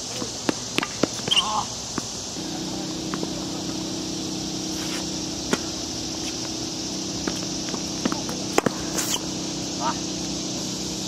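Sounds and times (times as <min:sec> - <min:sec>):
high hiss: 0:00.0 - 0:11.0
steady low hum: 0:00.0 - 0:11.0
tennis ball struck by racket: 0:00.2 - 0:02.1, 0:04.7 - 0:06.6, 0:07.2 - 0:09.3
distant ball hits and bounces: 0:07.2 - 0:08.9.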